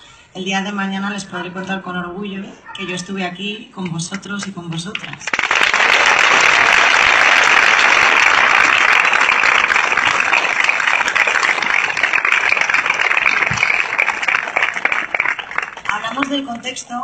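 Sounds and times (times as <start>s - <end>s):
audience applauding: 5.2s - 16.7s.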